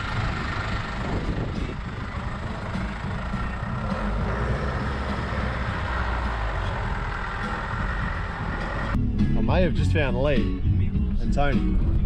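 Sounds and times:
vehicle engine and tyre noise: 0.0 - 9.0.

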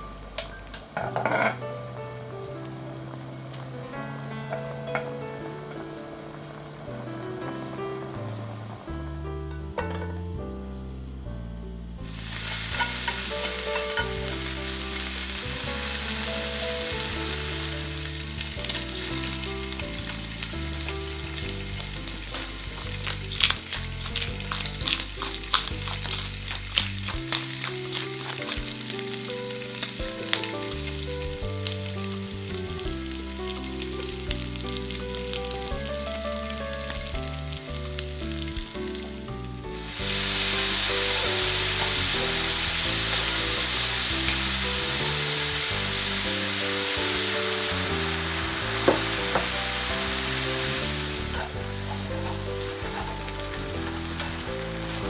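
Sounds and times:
sharp crackles and clicks: 0.0 - 55.0
bacon sizzling in frying pan: 12.1 - 55.0.

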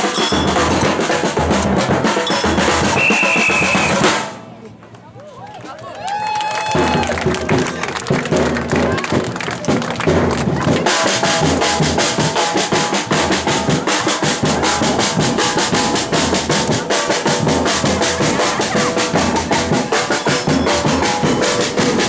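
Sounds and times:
samba percussion band drumming: 0.0 - 4.4, 6.7 - 22.0.

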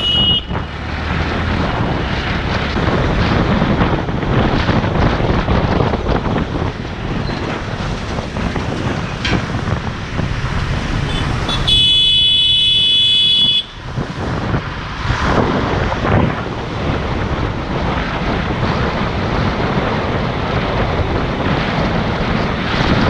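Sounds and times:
vehicle horn: 0.0 - 0.7, 11.0 - 13.8
traffic noise: 0.0 - 23.0
wind on microphone: 0.0 - 23.0.

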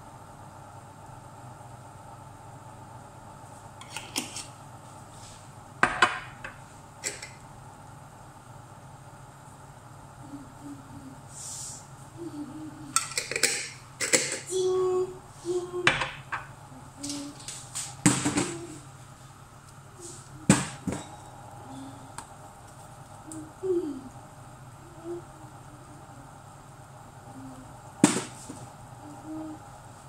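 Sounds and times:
dishes and utensils clattering: 13.0 - 14.5.

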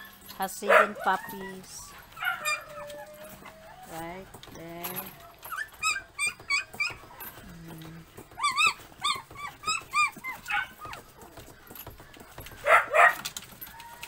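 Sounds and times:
puppies whimpering: 0.0 - 14.0.

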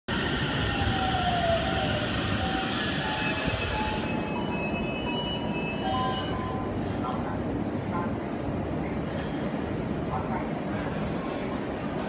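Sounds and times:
electric train slowing: 0.1 - 7.2
high squeals of brakes and wheels: 0.6 - 7.1.

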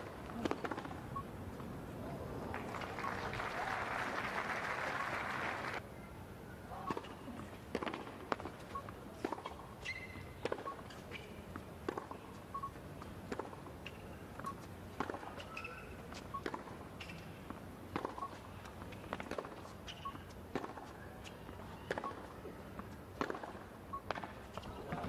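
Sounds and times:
tennis ball struck by rackets: 0.3 - 1.0, 6.8 - 8.6, 9.2 - 10.8, 11.8 - 12.2, 13.3 - 15.8, 16.4 - 16.8, 17.9 - 18.3, 20.5 - 20.9, 23.2 - 24.4
crowd applauding: 2.5 - 5.8
shoe squeak: 8.6 - 11.4, 15.3 - 17.4, 18.0 - 22.6.

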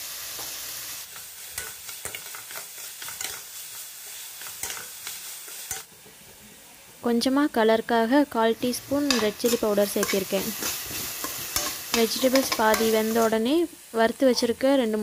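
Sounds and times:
vegetables sizzling in oil: 0.0 - 15.0
spatula scraping frying pan: 1.1 - 5.9, 8.7 - 13.3.

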